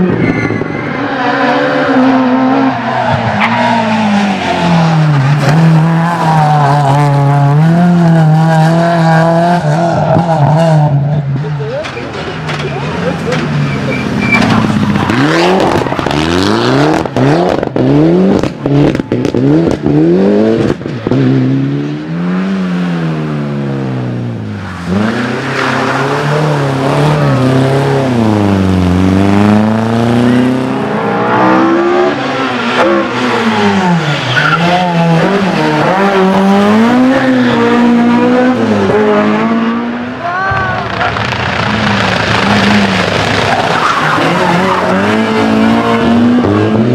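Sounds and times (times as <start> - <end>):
rally car engines revving: 0.0 - 46.9
sharp cracks from engines: 40.8 - 44.4.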